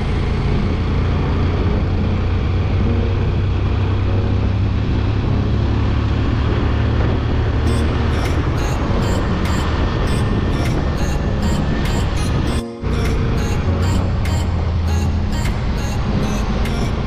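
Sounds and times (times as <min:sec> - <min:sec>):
motorcycle engine cruising: 0:00.0 - 0:17.0
wind rushing on microphone: 0:05.8 - 0:13.6.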